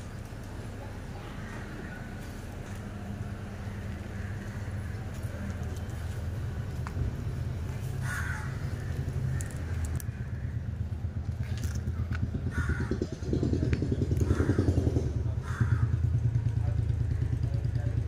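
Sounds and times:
small engine running: 0:09.1 - 0:18.0.

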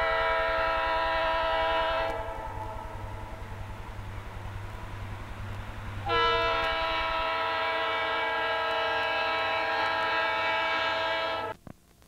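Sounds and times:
locomotive air horn chord: 0:00.0 - 0:04.0, 0:06.0 - 0:11.6
low engine rumble: 0:00.0 - 0:10.8.

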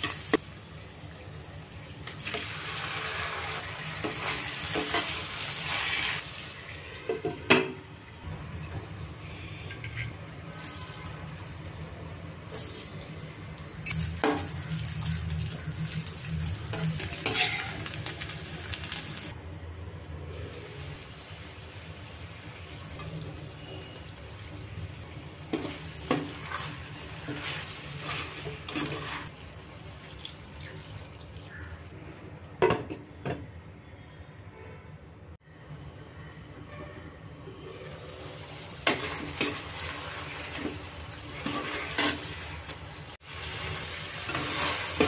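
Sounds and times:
food sizzling in hot oil: 0:00.0 - 0:07.0, 0:13.8 - 0:19.4, 0:20.4 - 0:30.4, 0:37.6 - 0:45.0.

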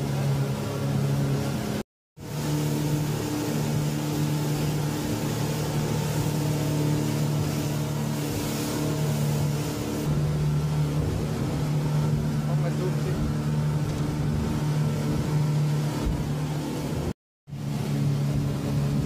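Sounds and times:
outboard motors humming: 0:00.0 - 0:19.0
wake and water rushing: 0:00.0 - 0:19.0.

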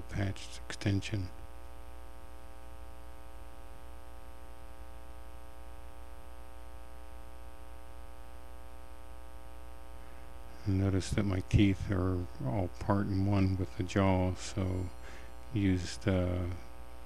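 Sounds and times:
faint hiss: 0:00.0 - 0:02.6, 0:09.8 - 0:17.0
mains hum: 0:00.0 - 0:17.0.

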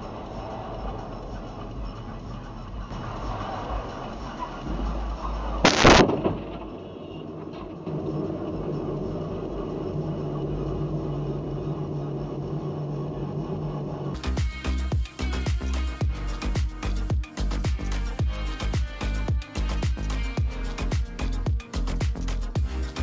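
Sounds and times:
steady hum: 0:00.0 - 0:23.0
car crash of crumpling metal: 0:05.6 - 0:07.9.

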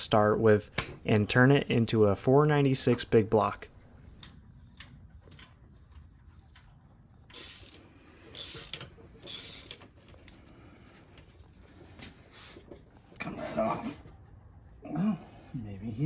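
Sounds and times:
metallic ratcheting: 0:07.3 - 0:09.9.

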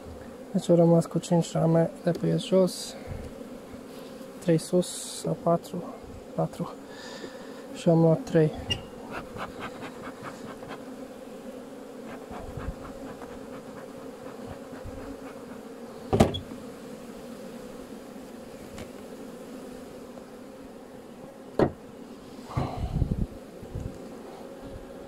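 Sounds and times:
honey bees buzzing: 0:00.0 - 0:25.0
hive equipment knocks: 0:16.1 - 0:16.5, 0:21.6 - 0:21.8.

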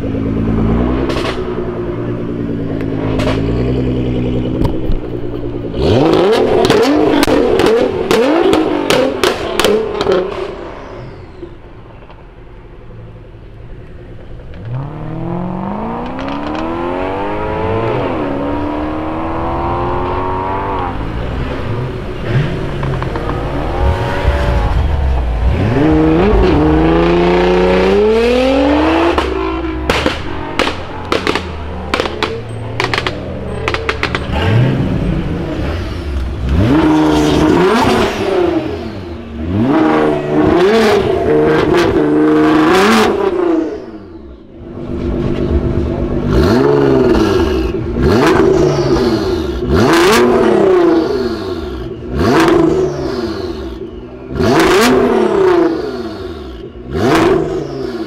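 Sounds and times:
sports car engine revving: 0:00.0 - 0:12.0, 0:13.4 - 0:58.0
exhaust pops and bangs: 0:01.0 - 0:01.6, 0:03.0 - 0:03.6, 0:06.6 - 0:10.5, 0:29.0 - 0:34.5.

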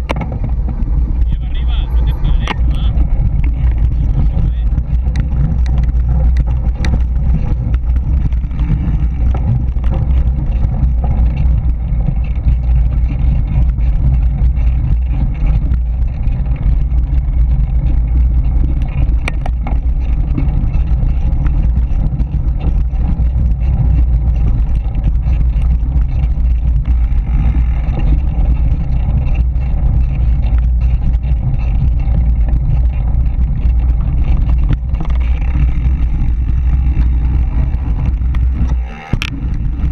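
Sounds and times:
bike and tyres rattling: 0:00.0 - 0:39.9
wind rumbling on microphone: 0:00.0 - 0:39.9.

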